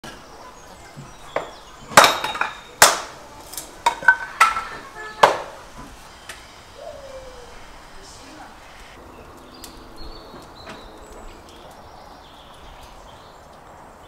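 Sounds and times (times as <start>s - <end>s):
hatchet chopping wood: 1.3s - 4.6s, 5.2s - 5.6s.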